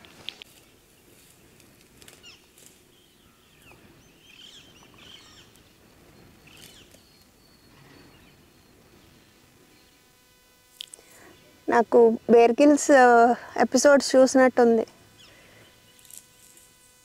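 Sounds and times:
bird chirps: 2.2 - 10.0.

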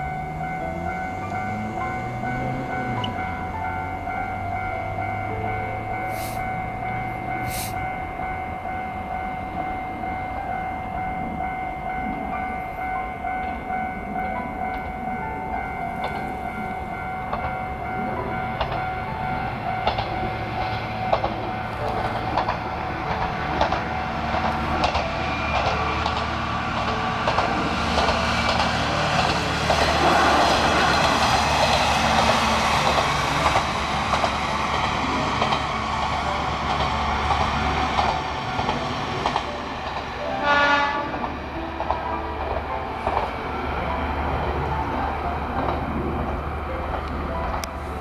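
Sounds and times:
diesel railcar passing: 0.0 - 48.0
train horn blast: 29.8 - 31.3, 40.2 - 41.4.

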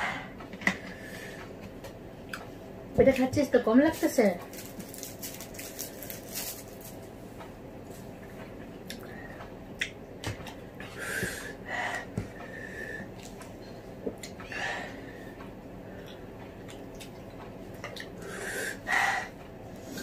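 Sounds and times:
straw wrappers rustling: 3.8 - 7.1.

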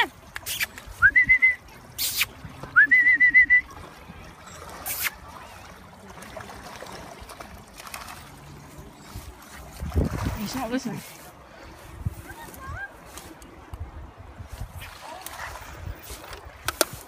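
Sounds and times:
faint wind and water hiss: 0.0 - 17.0
person whistling: 1.0 - 2.2, 2.8 - 3.7.

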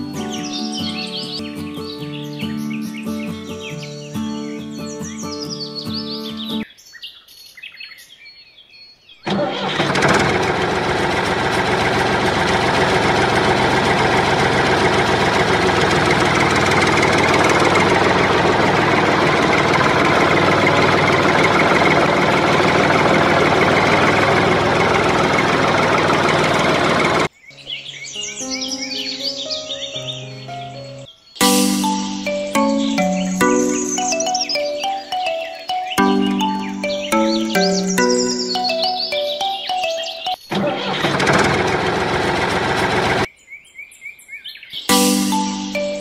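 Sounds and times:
mini water pump engine drone: 9.3 - 27.3, 40.5 - 43.3.

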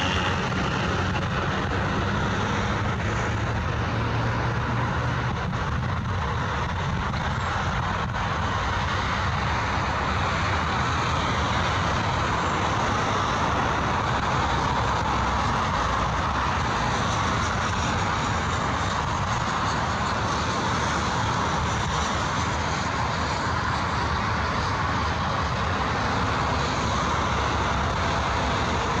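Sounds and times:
jet engines at takeoff: 0.0 - 29.0.

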